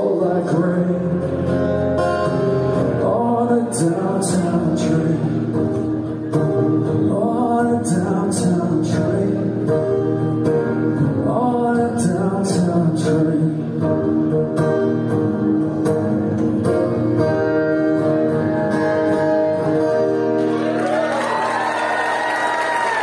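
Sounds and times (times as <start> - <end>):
man singing: 0.0 - 6.0, 6.7 - 10.1, 10.9 - 14.0
strummed acoustic guitar: 0.0 - 20.8.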